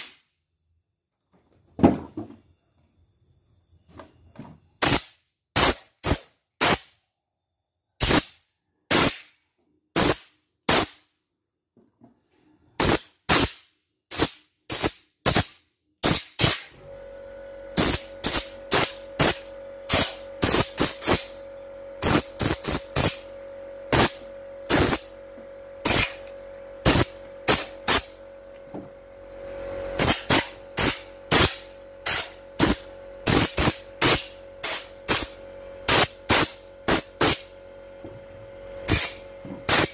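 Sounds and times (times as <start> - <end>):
aerosol spray puffs: 4.8 - 6.9, 8.0 - 9.3, 10.0 - 11.0, 12.8 - 16.7, 17.8 - 21.3, 22.0 - 23.2, 23.9 - 25.1, 26.8 - 28.2, 30.0 - 37.4, 38.9 - 39.9.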